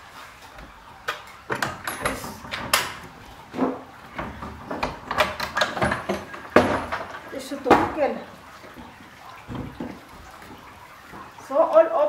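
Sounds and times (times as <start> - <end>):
sharp knocks and clacks: 1.1 - 8.0.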